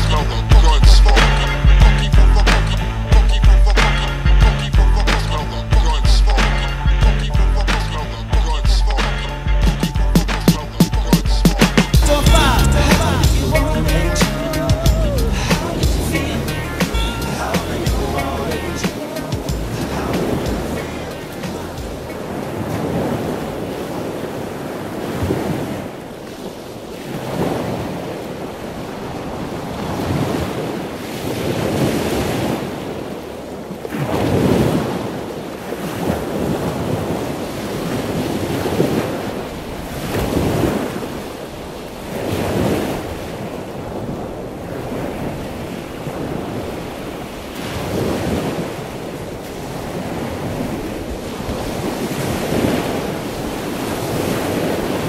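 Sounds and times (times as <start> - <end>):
ocean surf breaking: 0.0 - 55.0
wind buffeting microphone: 18.7 - 55.0.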